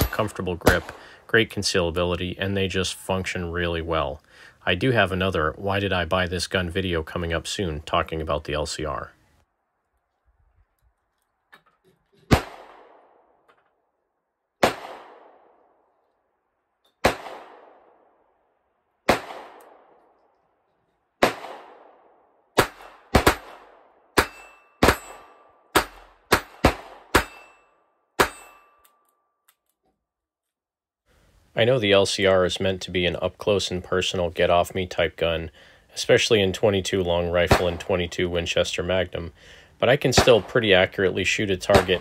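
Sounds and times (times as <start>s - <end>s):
faint ringing of steel target: 24.2s - 26.5s, 27.1s - 29.2s.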